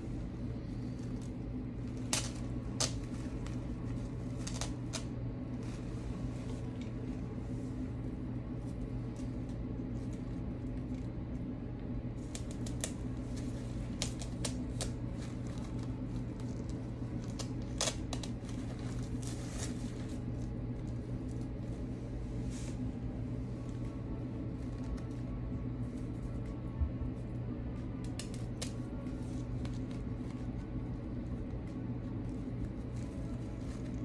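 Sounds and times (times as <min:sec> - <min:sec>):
artificial flowers rustling: 0:00.0 - 0:11.0, 0:12.1 - 0:26.3
steady low hum: 0:00.0 - 0:34.0.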